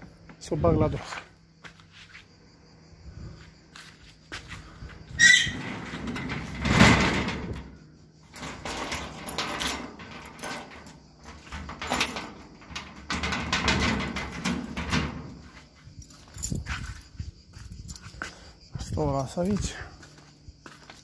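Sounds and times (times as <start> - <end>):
scraping and rattling: 5.2 - 17.1.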